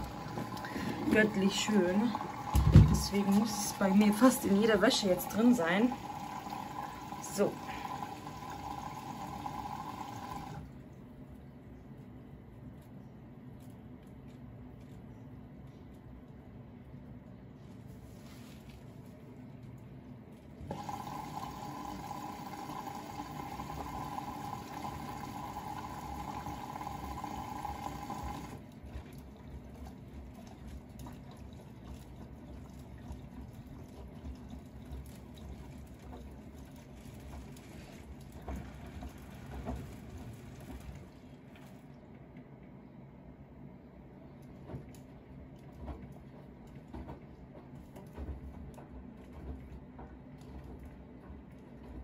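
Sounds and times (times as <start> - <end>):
washing machine drum turning: 0.0 - 4.2
wet laundry sloshing: 0.0 - 10.6
water rushing into washing machine: 0.0 - 10.8, 20.6 - 42.2.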